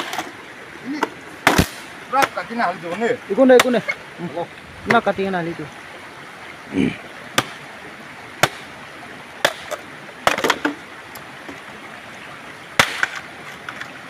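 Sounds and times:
machete chopping bamboo: 1.0s - 2.4s, 3.5s - 3.8s, 7.4s - 7.6s, 8.4s - 8.7s, 9.4s - 10.7s, 12.8s - 13.2s.

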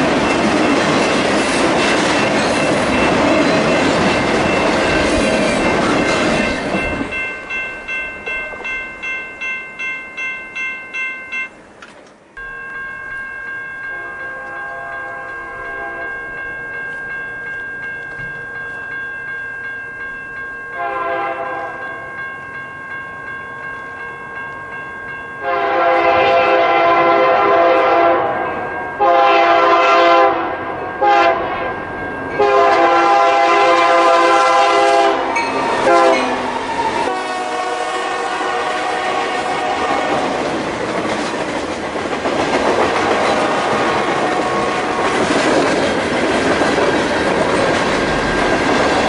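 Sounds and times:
train wheels rumbling: 0.0s - 16.6s, 32.2s - 49.0s
crossing warning bell ringing: 0.0s - 49.0s
locomotive air horn blasts: 13.9s - 16.1s, 20.8s - 21.8s, 25.4s - 28.4s, 29.0s - 31.7s, 32.4s - 36.5s, 37.1s - 40.1s.

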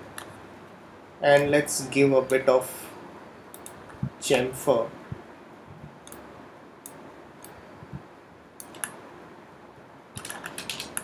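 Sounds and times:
faint steady hiss: 0.0s - 11.0s
computer mouse clicks: 3.5s - 3.9s, 6.0s - 6.2s, 8.6s - 9.0s, 10.2s - 11.0s.

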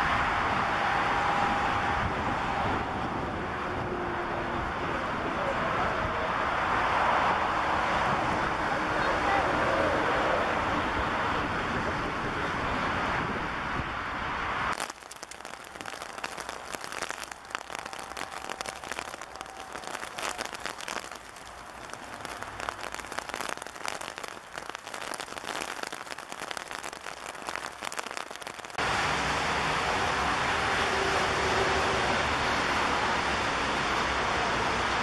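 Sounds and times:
hailstones and rain pelting down: 14.7s - 35.0s.

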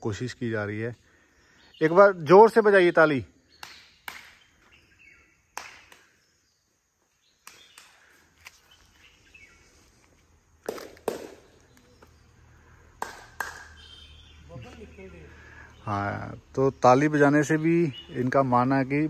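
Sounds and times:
hand claps: 3.6s - 4.4s, 5.5s - 6.2s, 7.4s - 8.0s, 10.6s - 11.9s, 13.0s - 13.8s.

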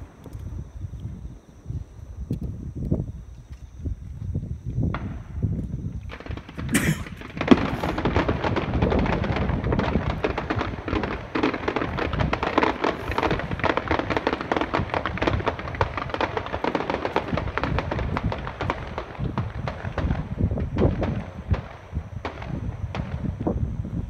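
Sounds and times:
fireworks crackling: 0.0s - 24.0s
firework bang: 4.8s - 24.0s.

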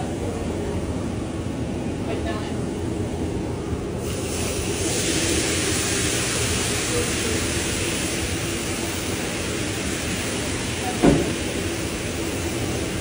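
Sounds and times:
water sizzling on hot griddle: 4.0s - 13.0s.

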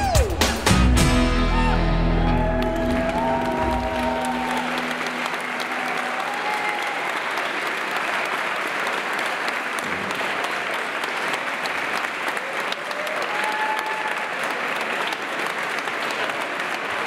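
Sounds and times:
dance music: 0.0s - 6.1s
audience applauding: 1.6s - 17.0s.

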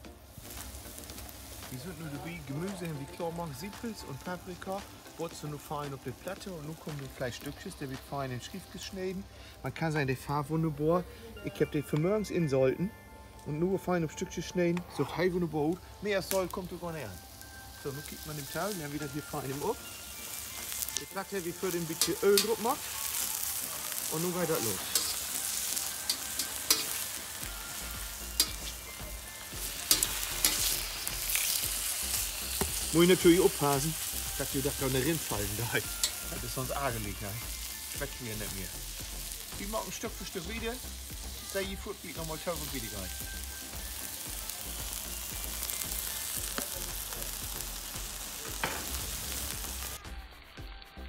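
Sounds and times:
beef sizzling on a griddle: 0.0s - 11.6s, 14.4s - 51.0s.

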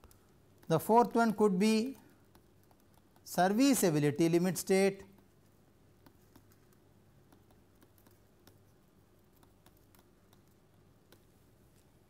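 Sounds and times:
stylus tapping on tablet screen: 2.0s - 3.3s, 5.1s - 11.6s.

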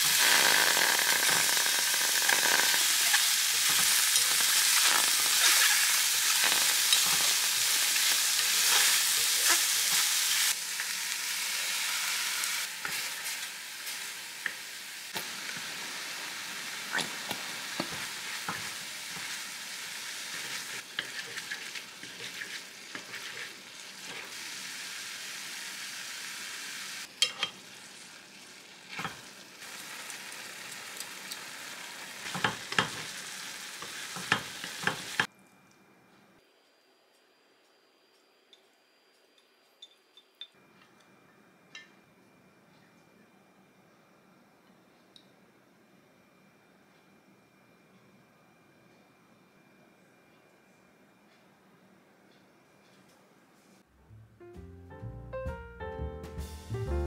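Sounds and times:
tofu sizzling in a pan: 0.0s - 35.3s.

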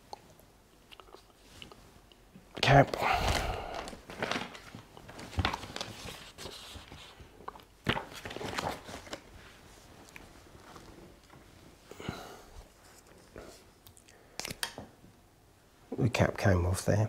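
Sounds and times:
paper rustling: 2.6s - 9.9s.

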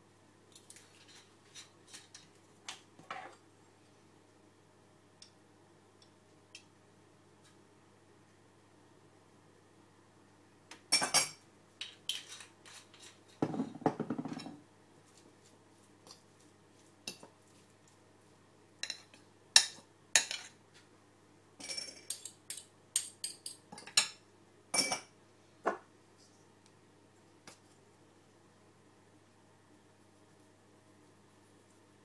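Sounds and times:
fork scraping ceramic bowl: 12.1s - 13.4s.

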